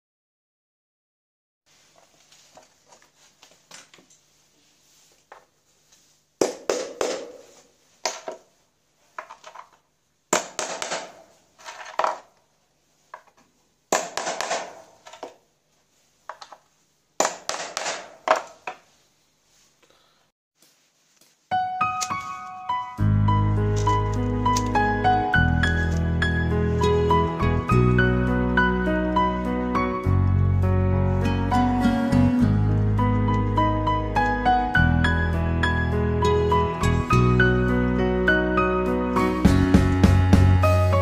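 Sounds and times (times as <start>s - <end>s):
hammer driving nails into board: 10.3s - 12.2s, 13.9s - 15.3s, 17.2s - 18.5s.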